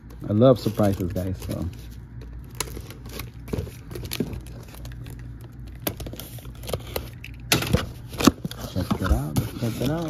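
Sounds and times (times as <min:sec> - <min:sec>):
low room hum: 0:00.0 - 0:10.0.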